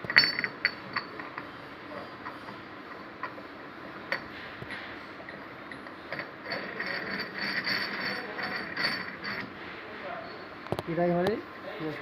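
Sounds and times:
metal rubbing metal rasp: 6.2s - 9.7s.

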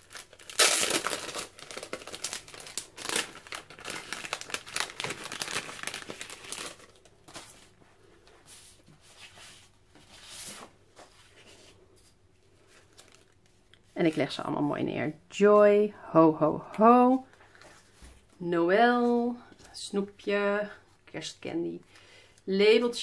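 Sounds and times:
plastic packet ripping open: 0.0s - 7.1s
plastic crinkling and rustling: 0.0s - 11.9s, 12.5s - 14.4s.

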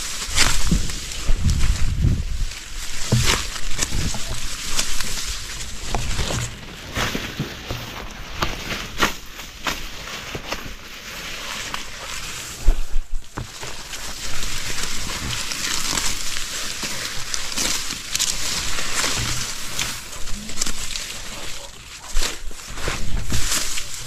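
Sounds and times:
grass and leaves rustling: 0.0s - 24.0s
stems snapping: 0.0s - 24.0s.

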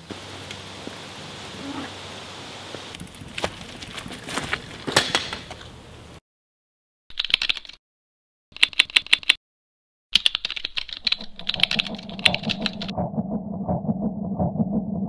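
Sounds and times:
low pulsing beat: 11.8s - 15.0s.

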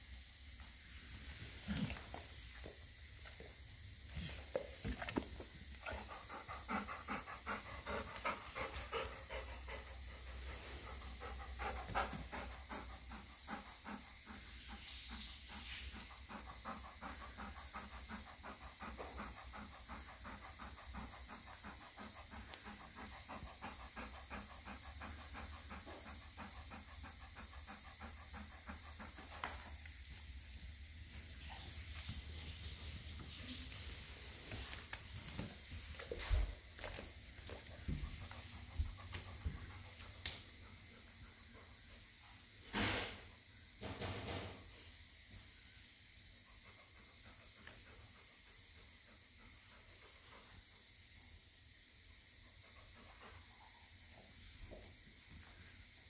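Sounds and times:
dog panting rapidly: 5.8s - 29.8s, 34.4s - 42.2s.

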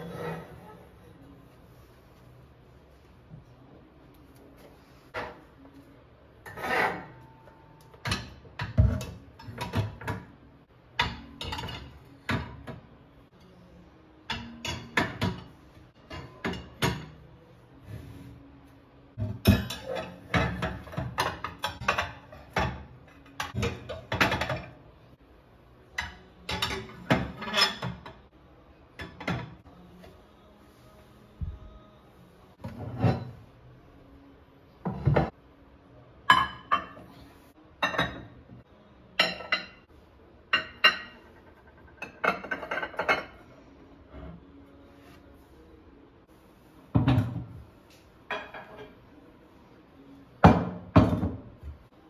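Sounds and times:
ceramic plates clinking: 26.0s - 28.2s, 40.5s - 43.4s, 48.3s - 49.0s.

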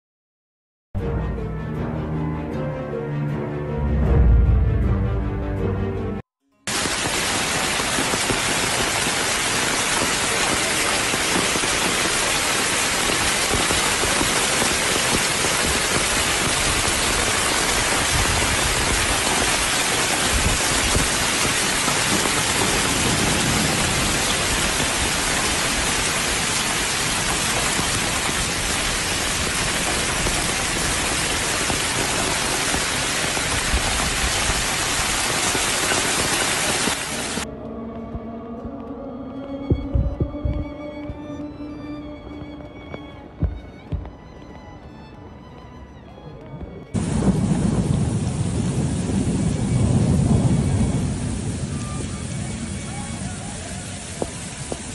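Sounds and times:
heavy rain pouring: 6.7s - 37.5s, 47.0s - 54.9s.

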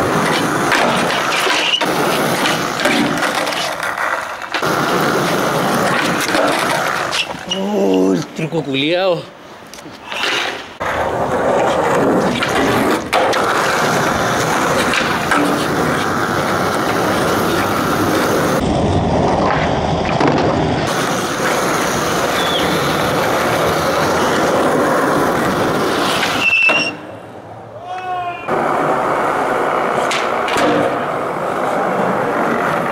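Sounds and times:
skateboard clacks: 0.0s - 7.5s, 10.1s - 27.2s, 27.9s - 32.9s
skateboard wheels rolling on concrete: 0.0s - 32.9s.

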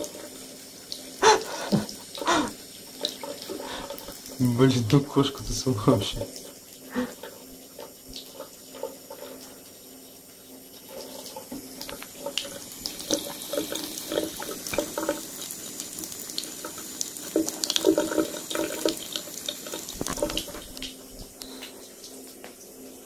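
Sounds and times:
tap running in thin stream: 0.0s - 23.0s
cat lapping water: 10.8s - 21.0s.

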